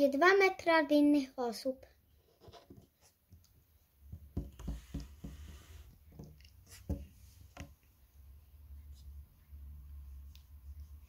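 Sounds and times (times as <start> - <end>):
hands knocking on wooden table: 4.2 - 5.5.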